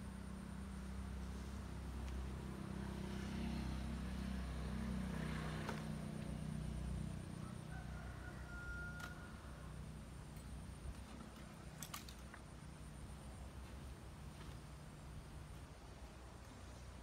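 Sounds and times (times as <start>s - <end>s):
passing vehicle engine hum: 0.0s - 11.7s.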